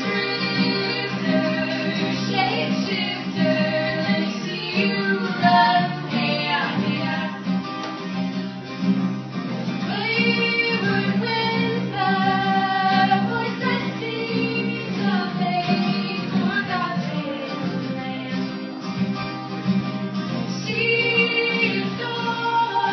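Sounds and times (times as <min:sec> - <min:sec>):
woman singing: 0:00.0 - 0:07.6, 0:09.8 - 0:19.0, 0:20.4 - 0:22.9
acoustic guitar: 0:00.0 - 0:22.9.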